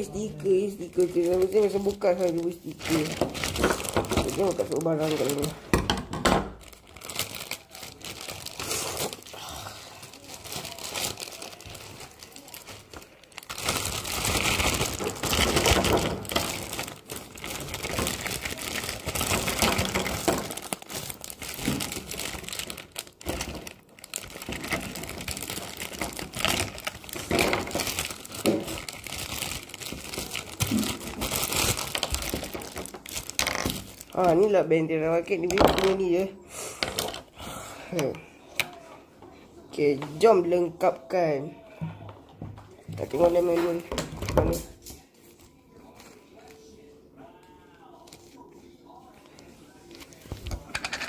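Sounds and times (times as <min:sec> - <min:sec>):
plastic packaging crinkling: 0:00.0 - 0:36.3.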